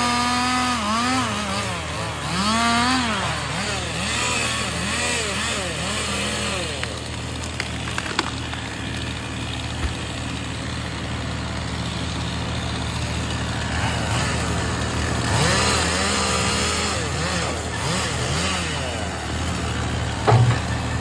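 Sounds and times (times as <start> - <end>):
truck engine and hydraulic loader: 0.0 - 21.0
sharp cracks: 6.6 - 10.2.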